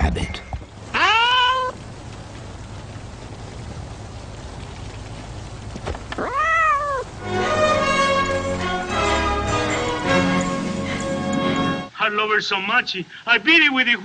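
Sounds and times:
faint hiss: 0.0 - 14.0
cat meowing: 0.9 - 1.8, 6.1 - 7.3
music with held notes: 7.2 - 11.9.

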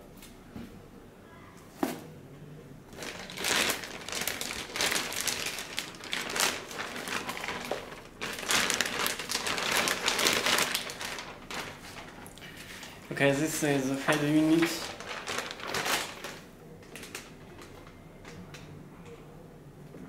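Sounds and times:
plastic bag crinkling: 2.9 - 18.4.

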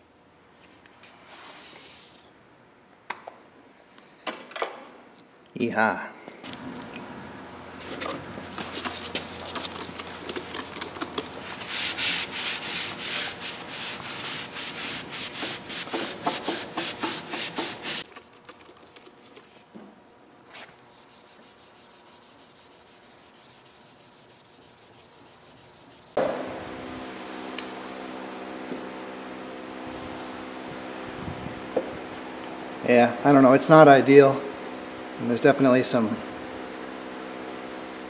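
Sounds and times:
towel scrubbing metal spindle: 7.8 - 19.1, 20.9 - 26.2.

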